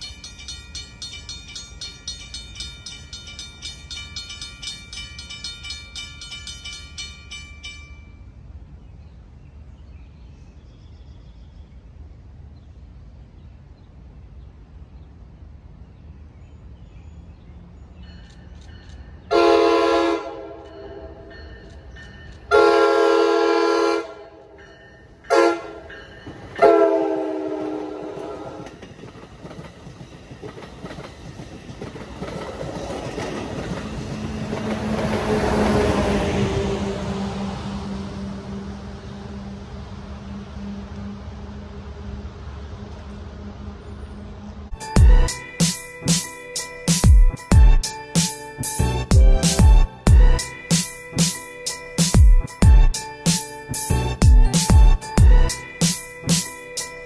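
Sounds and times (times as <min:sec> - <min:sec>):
train rumble: 0:00.0 - 0:57.0
train horn blasts: 0:19.3 - 0:21.3, 0:22.5 - 0:24.6, 0:25.3 - 0:26.0, 0:26.6 - 0:28.7.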